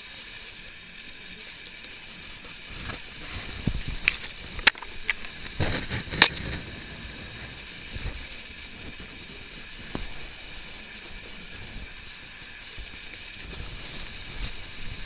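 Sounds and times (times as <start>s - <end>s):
steady hiss: 0.0s - 15.0s
brushing scrape: 2.7s - 10.3s.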